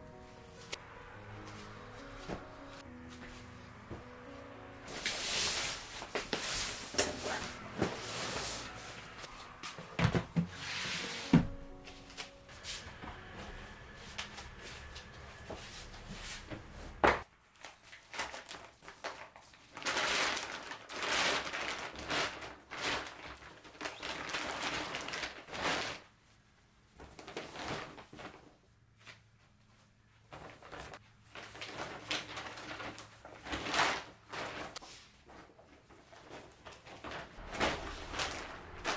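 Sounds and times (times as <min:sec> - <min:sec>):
tote bags rustling and crinkling: 0:01.5 - 0:26.1, 0:26.9 - 0:38.9.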